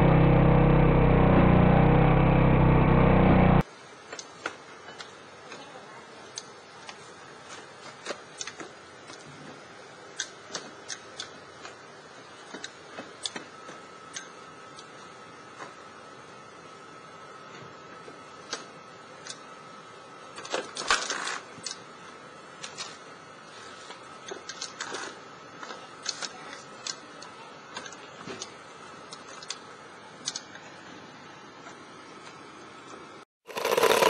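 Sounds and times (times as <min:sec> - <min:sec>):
loud engine: 0:00.0 - 0:03.6, 0:33.5 - 0:34.0.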